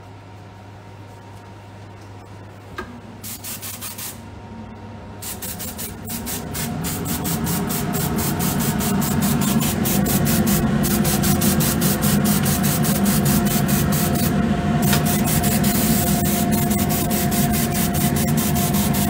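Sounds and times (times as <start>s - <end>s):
spray gun spraying: 3.2s - 4.2s, 5.2s - 19.0s.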